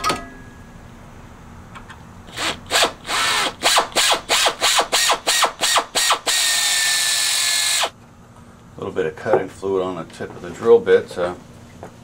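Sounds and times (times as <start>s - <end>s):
air drill whirring in bursts: 2.3s - 8.0s.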